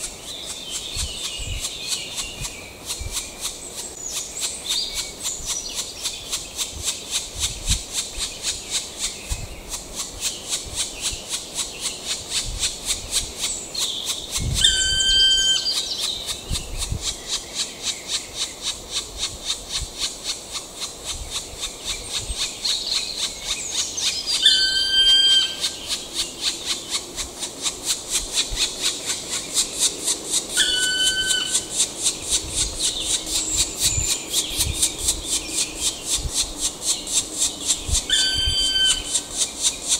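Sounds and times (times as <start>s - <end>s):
woodpecker whistled call: 14.4s - 16.2s, 22.6s - 26.8s, 30.6s - 31.8s, 37.4s - 39.5s.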